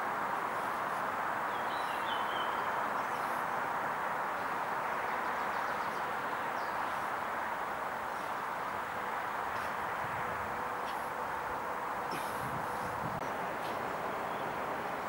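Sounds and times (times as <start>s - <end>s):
outdoor background hiss: 0.0s - 15.0s
bird chirping: 1.5s - 3.6s, 4.3s - 9.8s, 13.1s - 15.0s.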